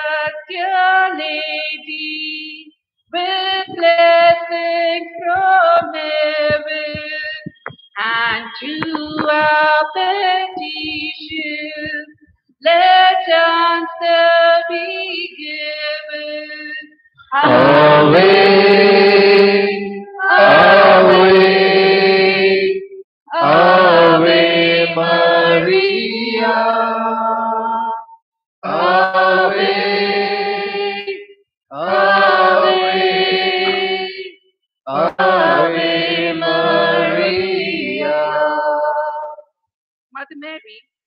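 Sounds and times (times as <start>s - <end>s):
hymn singing: 0.0s - 16.6s, 17.3s - 27.8s, 28.6s - 39.4s.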